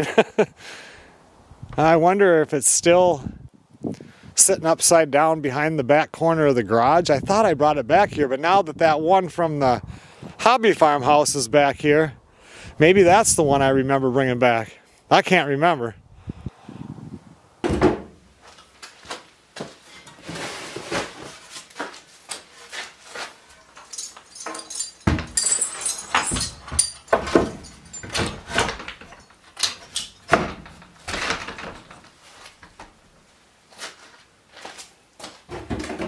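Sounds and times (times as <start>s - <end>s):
door knocks and latch rattles: 17.6s - 18.2s, 24.4s - 32.0s
heavy door thud: 17.6s - 18.2s.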